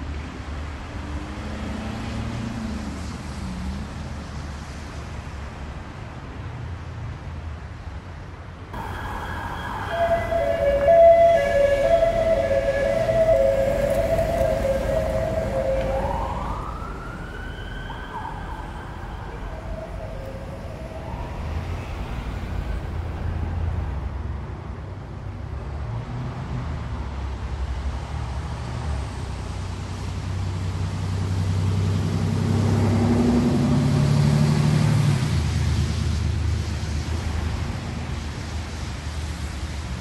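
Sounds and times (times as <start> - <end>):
road traffic noise: 0.0 - 40.0
emergency vehicle siren wailing: 8.8 - 23.7
large vehicle engine humming: 8.8 - 25.4.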